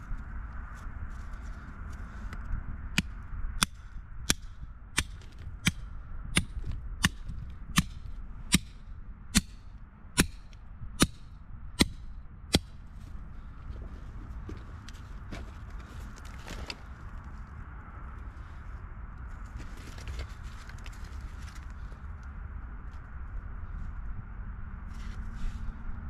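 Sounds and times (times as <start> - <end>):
hammer striking steel chisel: 3.0 - 5.8, 6.4 - 12.8.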